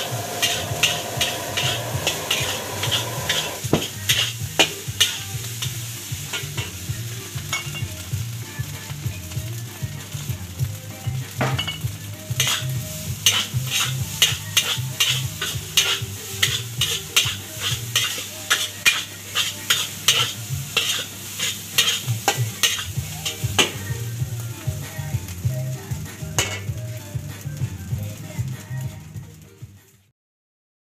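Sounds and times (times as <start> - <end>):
metal spatula scraping a wok: 0.0 - 8.0, 12.3 - 23.9
fried rice sizzling: 0.0 - 30.1.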